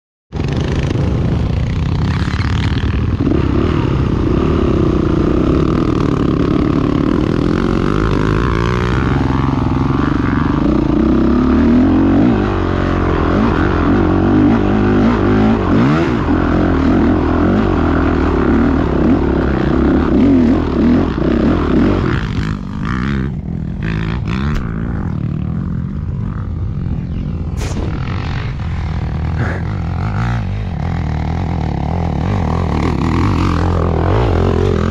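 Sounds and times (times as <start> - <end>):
dirt bike engine revving: 0.4 - 34.9.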